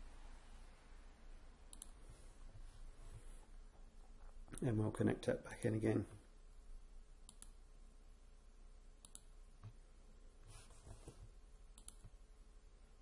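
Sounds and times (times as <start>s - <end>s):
faint computer mouse clicks: 1.7s - 2.0s, 7.3s - 7.6s, 9.0s - 9.8s, 11.8s - 12.2s.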